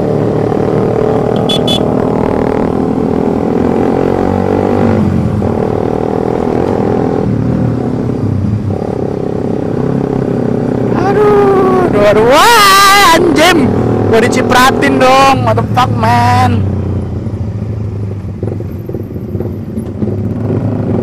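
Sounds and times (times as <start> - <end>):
motorcycle engine running: 0.1 - 3.0.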